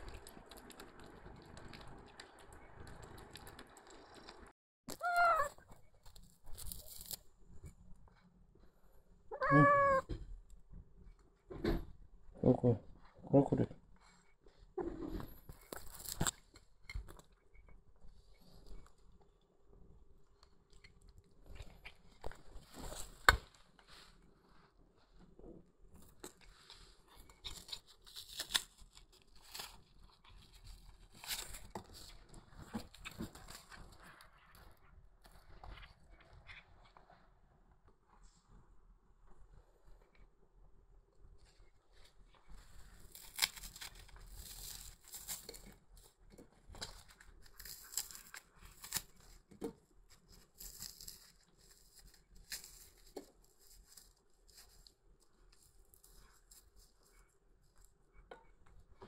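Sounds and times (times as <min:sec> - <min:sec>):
cat chewing and tearing meat: 0:00.0 - 0:59.0
chicken being torn apart: 0:27.4 - 0:29.9, 0:43.1 - 0:45.8, 0:46.9 - 0:49.4.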